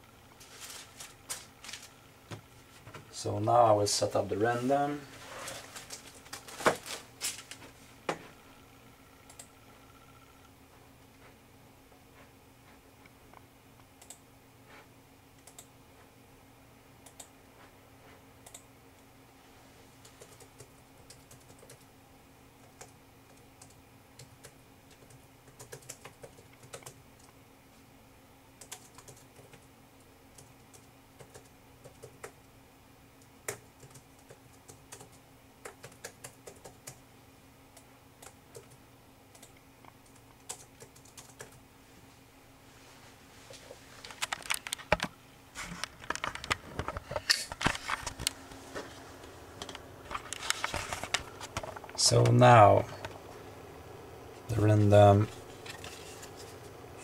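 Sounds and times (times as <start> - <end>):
steady low hum: 0.0 - 57.0
faint keyboard typing: 9.2 - 9.6, 13.8 - 14.3, 15.3 - 16.1, 17.0 - 17.4, 18.4 - 19.1, 20.0 - 21.9, 22.6 - 27.4, 28.6 - 32.5, 33.2 - 37.0, 37.7 - 41.7, 44.0 - 45.1.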